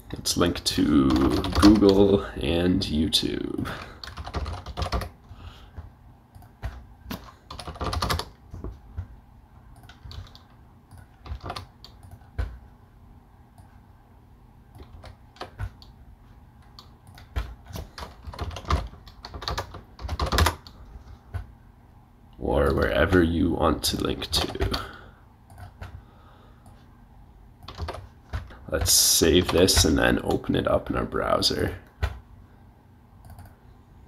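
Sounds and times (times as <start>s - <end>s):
typing on computer keyboard: 1.1s - 2.1s, 3.8s - 5.2s, 6.3s - 8.7s, 9.8s - 12.5s, 14.8s - 15.9s, 16.7s - 21.5s, 27.6s - 28.6s, 33.2s - 33.5s.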